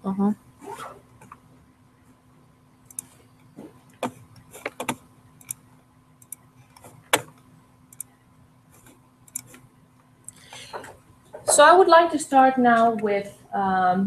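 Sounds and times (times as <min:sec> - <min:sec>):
faint steady hum: 0:00.0 - 0:14.0
computer mouse clicks: 0:02.8 - 0:05.6, 0:06.2 - 0:08.2, 0:08.8 - 0:10.6.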